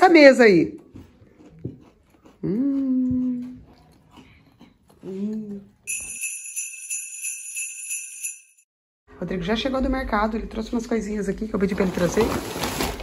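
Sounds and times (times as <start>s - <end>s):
jingle bell shimmer: 5.9s - 8.7s.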